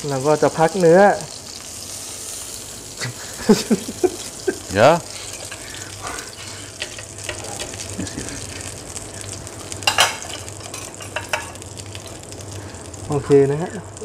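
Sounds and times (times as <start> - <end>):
butter sizzling in grill pan: 0.0 - 14.0.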